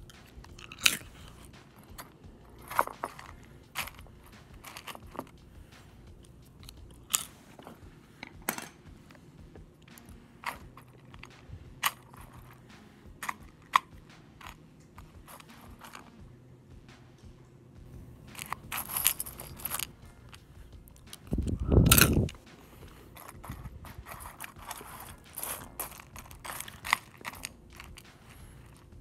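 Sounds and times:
cereal crunching: 0.0 - 5.4, 6.2 - 7.7, 18.3 - 28.9.

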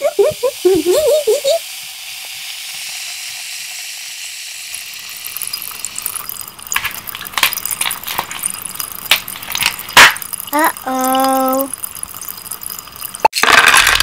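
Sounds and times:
high fizzing hiss: 0.0 - 6.1
crackling pops and clicks: 5.1 - 10.9.

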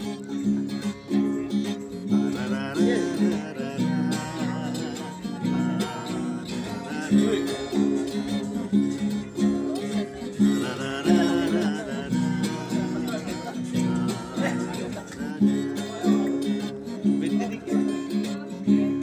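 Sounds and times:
acoustic guitar strumming: 0.0 - 19.0
man singing: 0.0 - 19.0.

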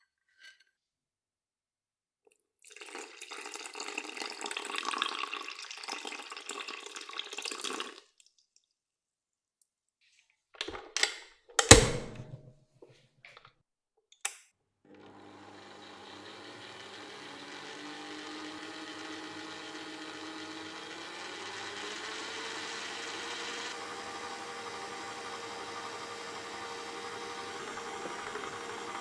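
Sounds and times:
mixer switch click: 11.6 - 12.4
stand mixer motor whine: 14.9 - 29.0.

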